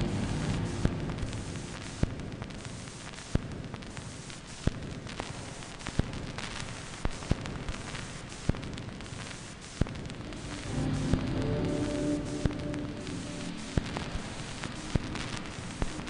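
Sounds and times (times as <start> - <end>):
music: 0.0 - 2.4, 10.3 - 16.0
static hiss and crackle: 0.0 - 16.0.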